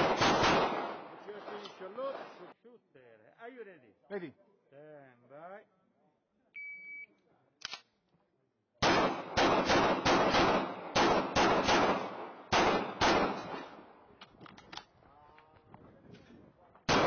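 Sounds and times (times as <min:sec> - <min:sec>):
pistol shots with echo: 0:00.0 - 0:02.4, 0:08.8 - 0:14.0.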